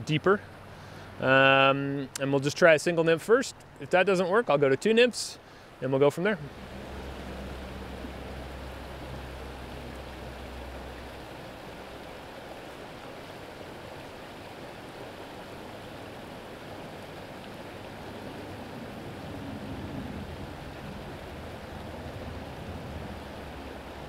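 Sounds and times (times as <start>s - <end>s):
stream running over rocks: 0.0s - 24.0s
low rumble: 6.4s - 11.4s.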